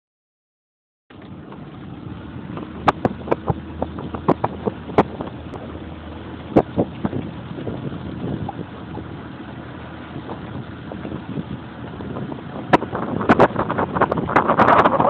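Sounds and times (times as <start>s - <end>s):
motorboat engine humming: 1.1s - 15.0s
wind buffeting microphone: 1.2s - 15.0s.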